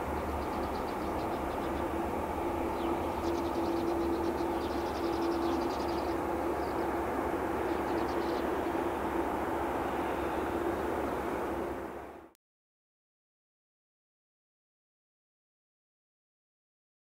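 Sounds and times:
jet engines idling: 0.0s - 12.3s.

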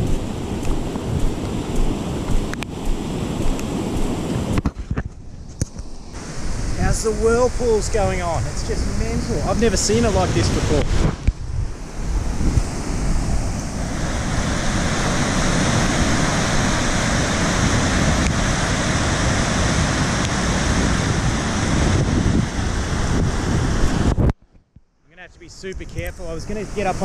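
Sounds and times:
wind buffeting microphone: 0.0s - 24.5s
floodwater rushing over spillway: 6.2s - 11.0s, 12.8s - 23.2s, 26.0s - 27.0s.

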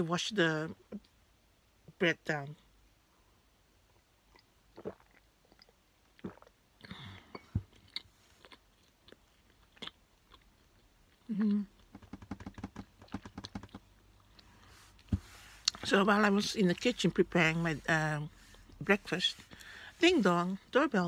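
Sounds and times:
person chewing bread: 4.2s - 15.8s
person drinking from a glass: 4.8s - 7.5s.

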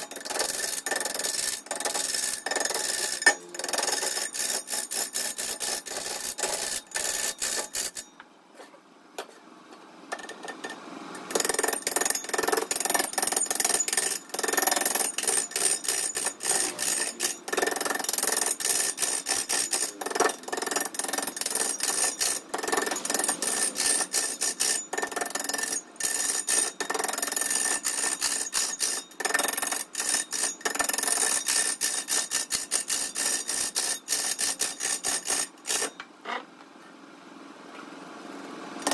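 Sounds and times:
wood lathe scraping hiss: 11.3s - 35.9s.

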